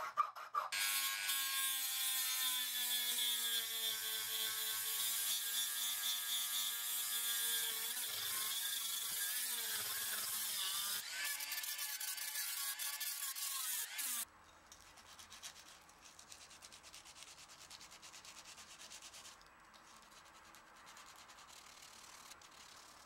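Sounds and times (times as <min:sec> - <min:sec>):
rotary tool grinding wood: 0:00.0 - 0:14.3.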